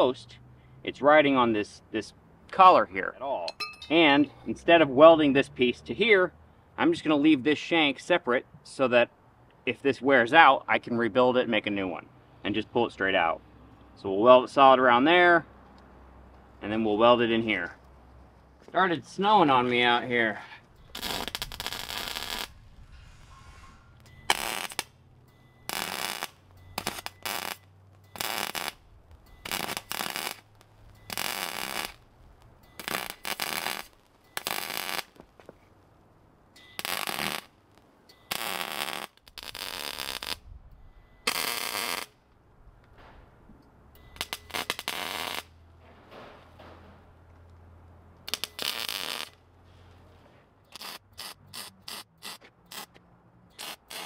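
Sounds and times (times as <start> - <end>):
low welder hum: 20.5 - 35.3, 36.6 - 47.4, 48.2 - 49.6
arc welder crackling: 20.6 - 36.0, 36.7 - 40.4, 41.2 - 42.4, 44.0 - 45.8, 48.2 - 49.5, 50.7 - 54.0.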